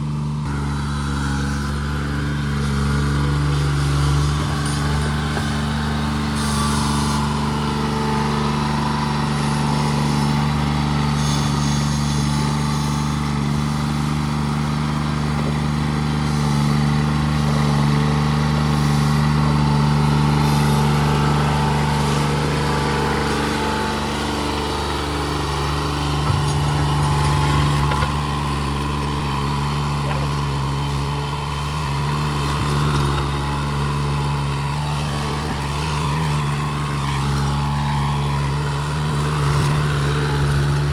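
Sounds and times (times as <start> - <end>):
tractor engine running: 0.0 - 40.9.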